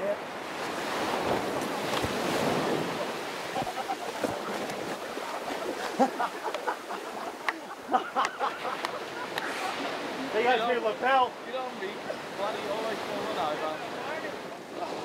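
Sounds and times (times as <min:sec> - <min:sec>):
surf breaking on beach: 0:00.0 - 0:15.0
splashes in water: 0:00.9 - 0:10.2.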